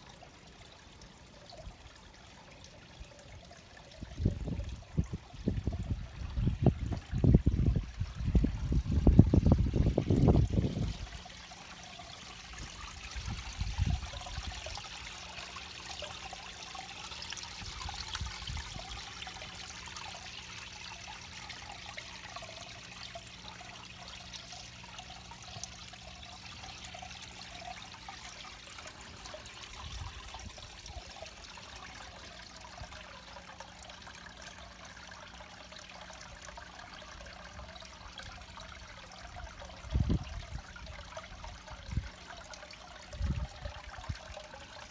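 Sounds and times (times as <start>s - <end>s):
water trickling and splashing: 0.0s - 44.9s.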